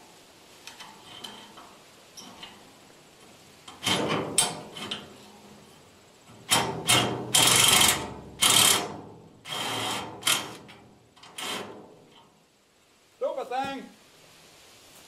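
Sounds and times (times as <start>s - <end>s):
wrench clicking and rasping on metal: 6.4s - 11.7s.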